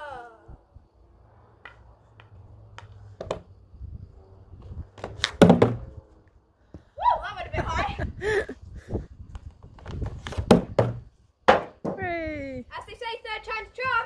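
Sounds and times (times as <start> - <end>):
stick tapping a ball on grass: 1.6 - 3.4
loud thunk: 5.4 - 5.9.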